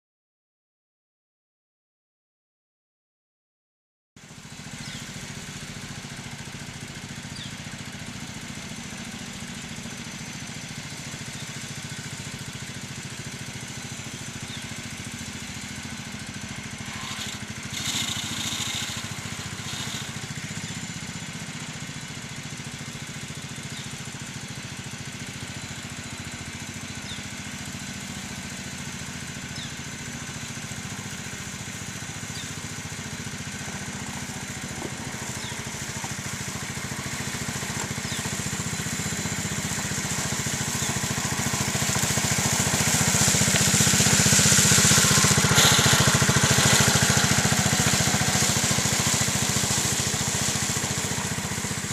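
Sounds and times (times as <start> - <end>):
model locomotive motor humming: 10.5 - 22.1, 22.7 - 51.9
hissing rush: 36.6 - 51.9.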